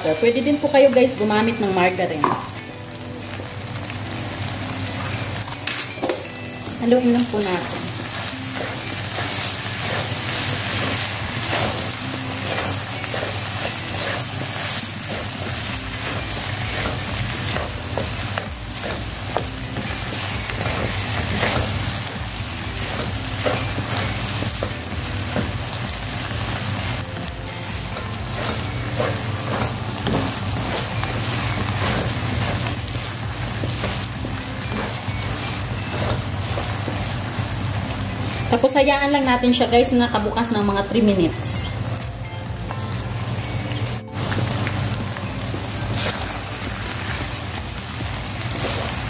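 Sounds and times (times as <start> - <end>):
food sizzling in a wok: 0.0 - 49.0
wooden spatula scraping and tapping: 7.2 - 37.2.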